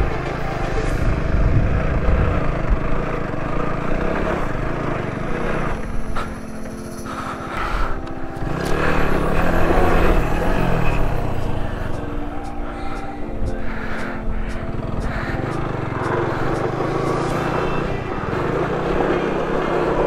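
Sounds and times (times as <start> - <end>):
motorcycle engine pulling: 0.0 - 12.3.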